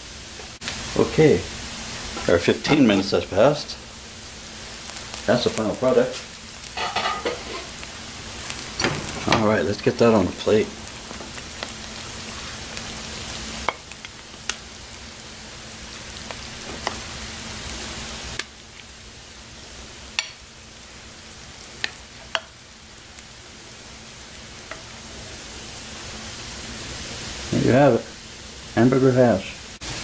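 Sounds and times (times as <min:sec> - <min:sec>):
steady hiss: 0:00.0 - 0:30.0.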